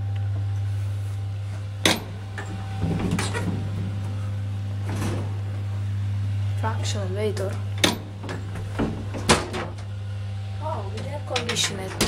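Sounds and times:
low hum: 0.0 - 12.0
elevator door clunk: 1.8 - 5.9, 6.7 - 12.0
elevator doors rattling: 1.8 - 12.0.

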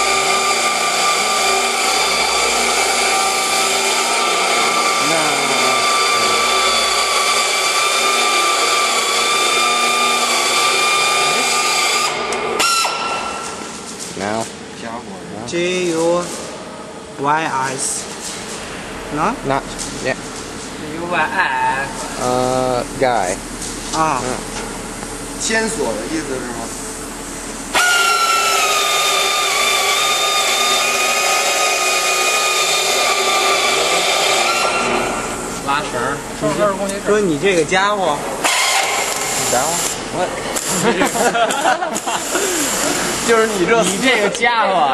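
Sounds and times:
loud hiss: 0.0 - 14.4, 25.2 - 36.3, 38.3 - 44.1
machine motor whining: 0.0 - 14.6, 17.0 - 44.6.

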